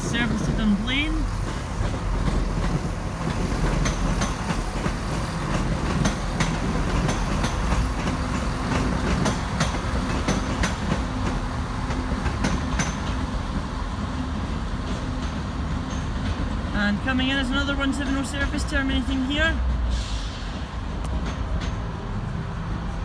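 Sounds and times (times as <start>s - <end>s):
train wheels clicking over joints: 0.1s - 16.8s, 19.6s - 22.9s.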